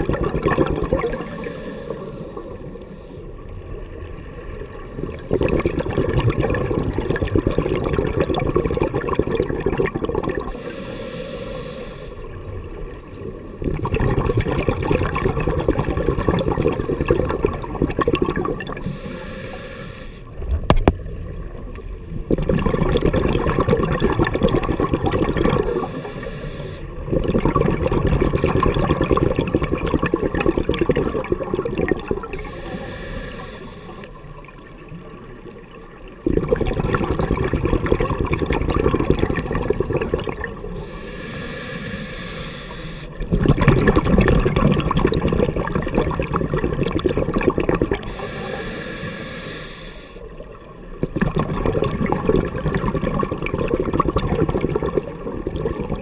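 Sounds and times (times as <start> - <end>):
bubbling exhaust on exhale: 0.0 - 3.3, 5.0 - 20.8, 22.1 - 34.2, 36.2 - 56.0
regulator hiss on inhale: 1.0 - 3.5, 10.5 - 13.7, 18.8 - 20.4, 25.6 - 27.1, 32.2 - 34.4, 40.6 - 43.3, 48.0 - 50.4.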